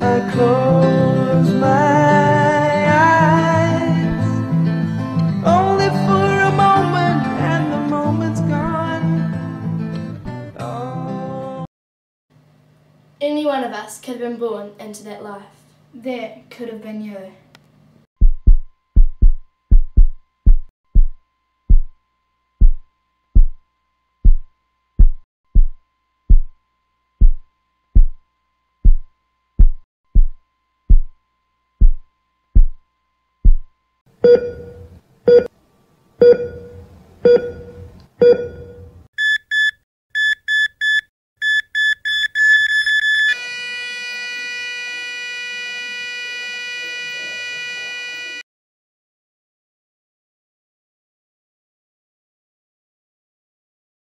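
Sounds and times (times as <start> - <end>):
heartbeat thumps: 18.2 - 21.9, 22.6 - 22.8, 23.4 - 23.6, 24.2 - 26.6, 27.2 - 27.4, 28.0 - 28.2, 28.8 - 31.2, 31.8 - 32.0, 32.6 - 32.8, 33.4 - 33.7
electronic beeps: 37.3 - 43.4.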